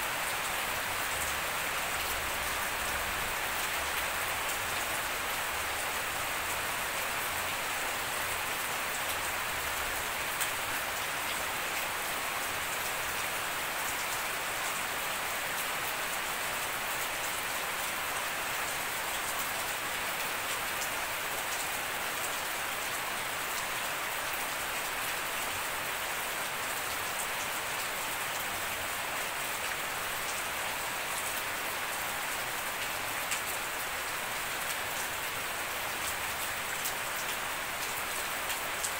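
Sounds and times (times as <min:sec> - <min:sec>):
steady rain hiss: 0:00.0 - 0:38.9.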